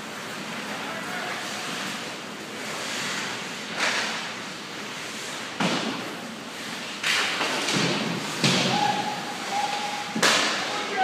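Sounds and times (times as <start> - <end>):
skates scraping on ice: 0.0 - 11.0
slams against the boards: 7.1 - 8.9.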